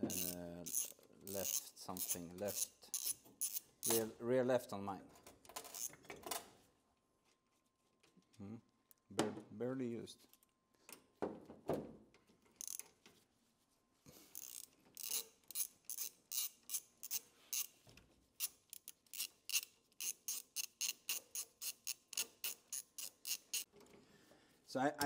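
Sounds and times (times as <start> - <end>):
ratchet wrench clicking: 0.0 - 4.1, 12.6 - 12.9, 14.3 - 17.8, 18.4 - 23.7.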